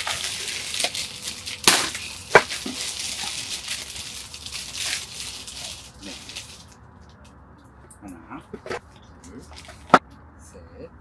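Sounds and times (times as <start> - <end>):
packaging tearing and crinkling: 0.0 - 6.8.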